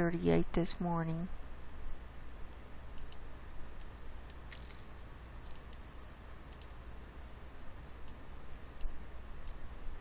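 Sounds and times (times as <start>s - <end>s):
low electrical hum: 0.0s - 10.0s
computer mouse clicking: 2.9s - 3.2s, 3.8s - 5.9s, 6.5s - 6.8s, 8.0s - 9.6s.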